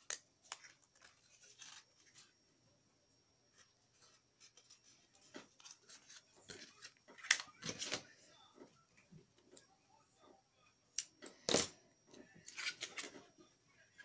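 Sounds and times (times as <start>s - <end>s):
cardstock rustling and folding: 0.0s - 2.4s, 3.5s - 8.8s.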